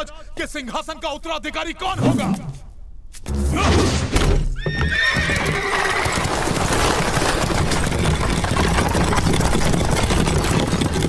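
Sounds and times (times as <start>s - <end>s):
horse whinnying: 4.6s - 7.2s
horses galloping hooves pounding: 4.6s - 11.0s.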